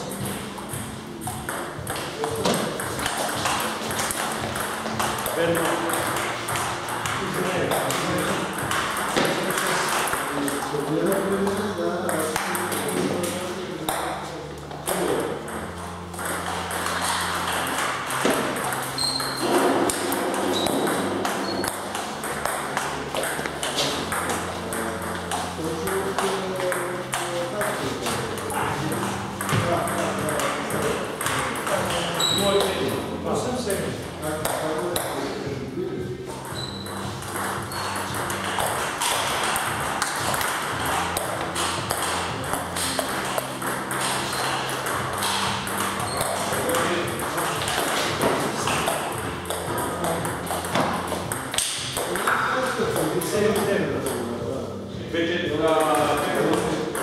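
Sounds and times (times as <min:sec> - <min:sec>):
ball bouncing on table: 0:00.1 - 0:33.0, 0:33.9 - 0:35.2, 0:36.4 - 0:54.2
ball clicking off bats: 0:01.2 - 0:11.2, 0:36.5 - 0:52.5.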